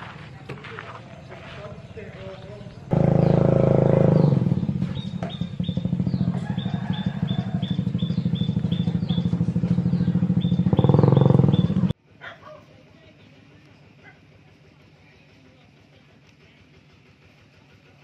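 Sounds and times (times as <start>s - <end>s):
small engine running: 2.8s - 12.0s, 13.4s - 18.0s.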